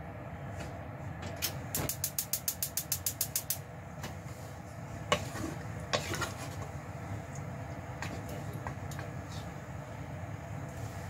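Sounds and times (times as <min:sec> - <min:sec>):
gas stove igniter clicking: 0:01.4 - 0:03.6.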